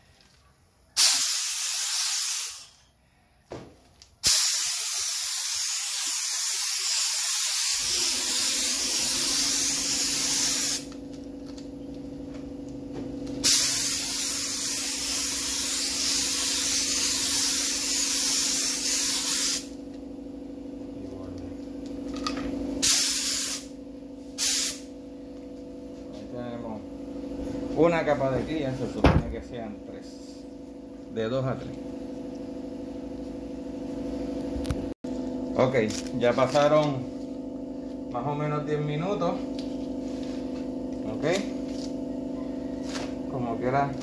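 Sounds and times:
spray gun hissing: 1.0s - 2.7s, 4.2s - 10.9s, 13.4s - 19.8s, 22.8s - 23.7s, 24.4s - 24.9s.

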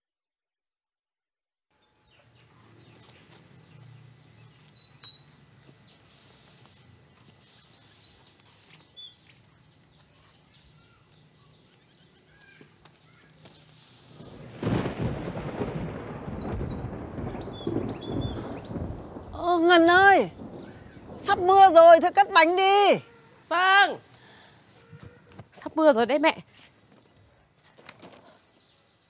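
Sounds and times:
birds chirping: 1.8s - 29.0s
thunder rumbling: 14.1s - 23.0s.

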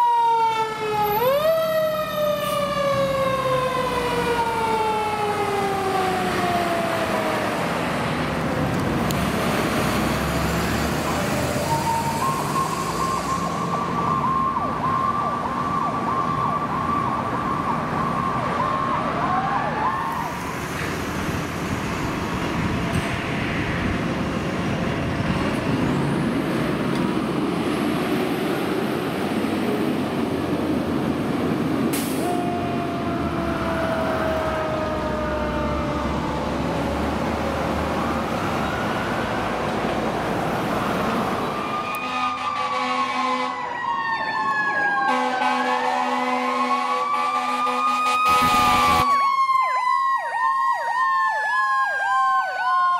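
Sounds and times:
fire engine siren wail: 0.0s - 52.9s
heavy truck engine: 1.0s - 49.3s
high warbling siren tone: 11.1s - 20.4s.

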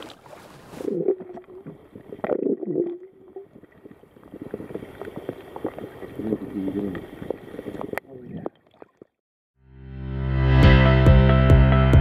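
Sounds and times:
underwater gurgling and bubbling: 0.6s - 8.6s.

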